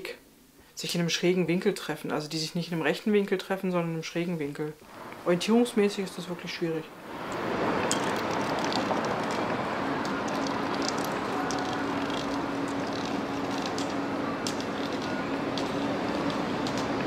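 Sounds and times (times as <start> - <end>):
steady low hum: 4.3 - 17.0
street traffic noise: 4.8 - 17.0.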